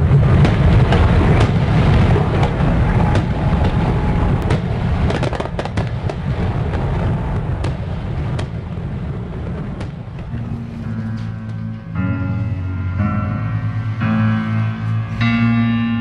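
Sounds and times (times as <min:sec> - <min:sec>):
fireworks crackles: 0:00.0 - 0:11.3
fireworks bursts rumbling: 0:00.0 - 0:15.9.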